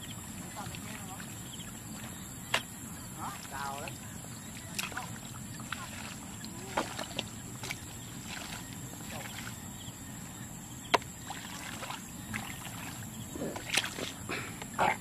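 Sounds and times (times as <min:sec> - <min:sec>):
hands squelching in mud: 0:04.6 - 0:09.6, 0:11.3 - 0:14.4.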